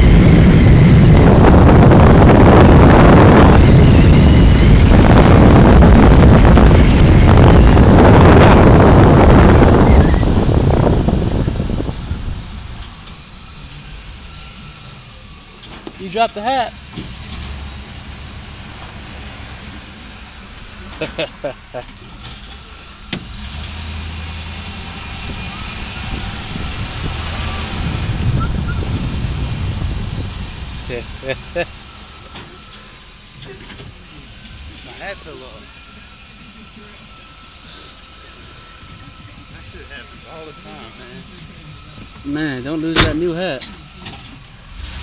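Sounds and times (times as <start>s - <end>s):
wind buffeting microphone: 0.0s - 14.7s, 23.2s - 31.9s
truck ride rumble: 0.0s - 45.0s.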